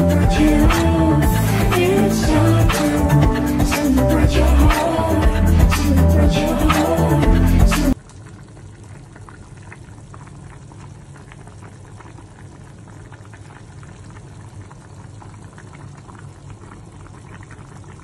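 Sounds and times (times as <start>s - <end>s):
low steady hum: 0.0s - 18.0s
soup boiling and bubbling: 7.9s - 18.0s.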